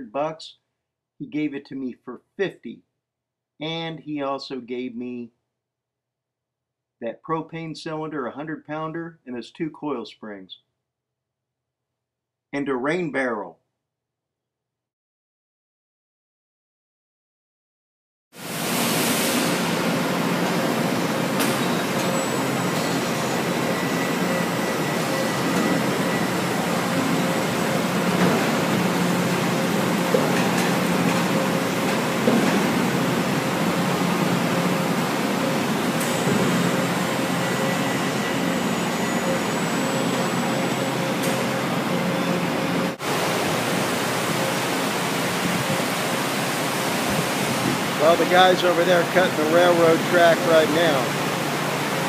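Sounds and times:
industrial machinery drone: 18.5s - 52.0s.

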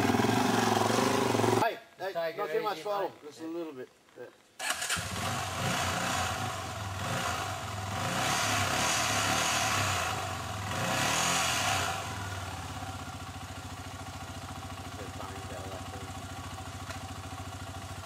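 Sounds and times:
motorcycle engine idling: 0.0s - 1.6s, 4.8s - 8.0s, 10.1s - 10.8s, 11.9s - 18.0s
motorcycle engines revving: 0.0s - 1.6s, 4.6s - 18.0s.

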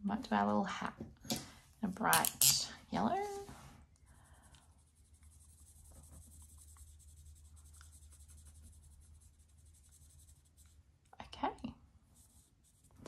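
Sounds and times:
marker scratching on paper: 4.7s - 10.9s, 12.2s - 13.0s.

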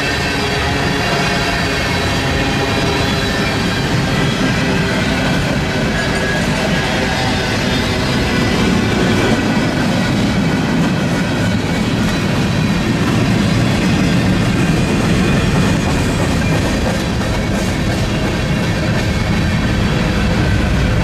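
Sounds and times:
freight train rumbling past: 0.0s - 21.0s.

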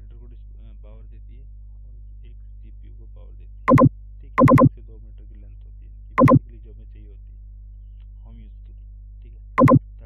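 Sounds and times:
computer mouse clicks: 3.7s - 4.7s, 6.2s - 6.4s, 9.6s - 9.8s.

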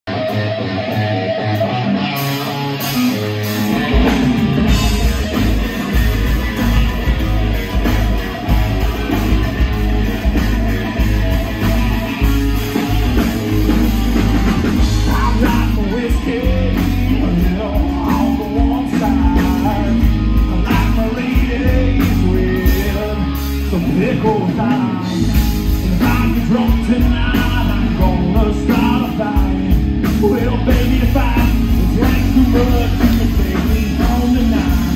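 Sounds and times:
bass guitar: 0.0s - 34.9s
drums: 0.0s - 34.9s
electric and acoustic guitars: 0.1s - 34.9s
man singing lead vocal: 14.8s - 34.9s.

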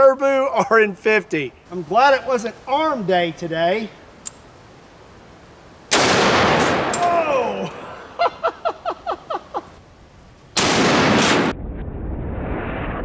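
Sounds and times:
low steady noise: 0.0s - 11.5s
rifle shot: 5.9s - 7.1s, 10.6s - 11.6s.

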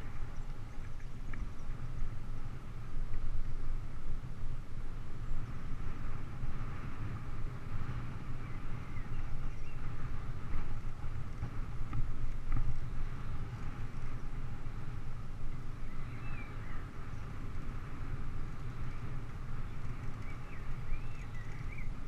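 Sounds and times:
bicycle tyre noise: 0.0s - 22.0s
wind rumble: 0.0s - 22.0s
faint bird chirps: 15.7s - 17.4s, 19.7s - 22.0s.

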